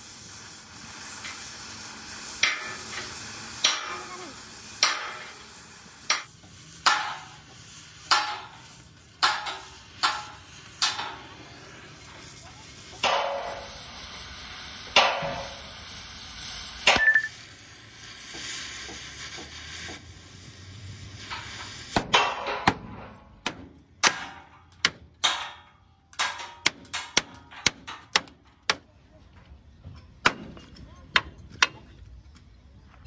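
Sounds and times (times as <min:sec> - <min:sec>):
cutting torch hissing: 0:00.0 - 0:22.1
hammer striking metal: 0:02.4 - 0:04.0, 0:04.8 - 0:05.4, 0:06.1 - 0:07.4, 0:08.1 - 0:11.4, 0:13.0 - 0:13.7, 0:15.0 - 0:15.6, 0:22.0 - 0:28.8
sharp metal clanks: 0:04.8 - 0:05.4, 0:06.1 - 0:11.4, 0:13.0 - 0:13.8, 0:15.0 - 0:15.6, 0:21.2 - 0:28.4.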